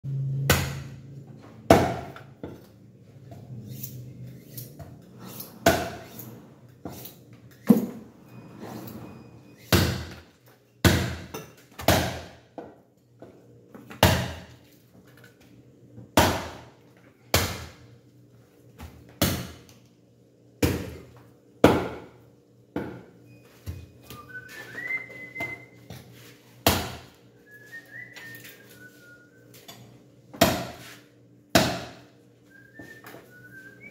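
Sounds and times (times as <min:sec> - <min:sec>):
whistled notes: 0:23.9 - 0:25.9, 0:27.4 - 0:29.6, 0:32.5 - 0:33.9.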